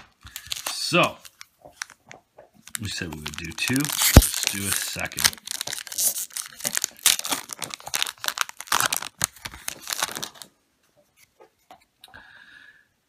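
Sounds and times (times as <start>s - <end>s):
foil wrapper crinkling and tearing: 0.2s - 2.0s, 2.6s - 10.5s.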